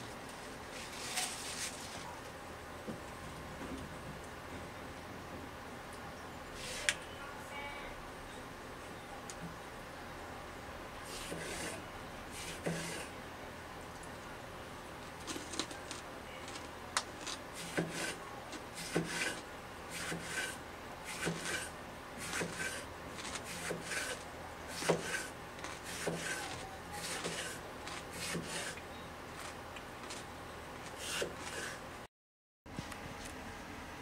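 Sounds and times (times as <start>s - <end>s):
knife scraping cucumber: 11.0s - 13.1s, 15.2s - 28.8s, 29.4s - 31.8s.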